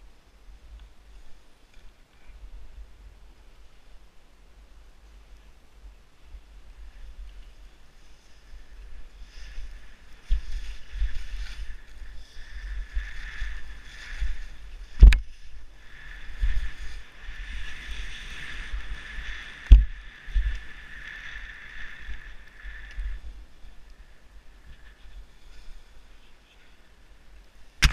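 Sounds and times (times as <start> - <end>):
skis hissing through snow: 5.0 - 26.6
low thumps and rumble: 15.0 - 15.3, 19.6 - 20.6.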